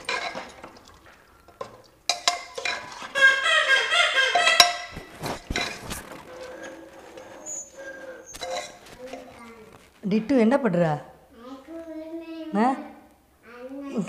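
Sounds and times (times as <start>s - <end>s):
ladle clinking: 0.0s - 3.4s, 4.2s - 9.4s
metal ladle scraping a pot: 0.0s - 3.4s, 4.2s - 9.8s.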